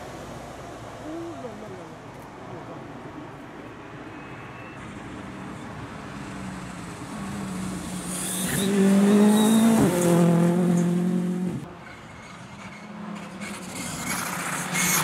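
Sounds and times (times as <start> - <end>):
rally car engine at high revs: 7.0 - 11.7.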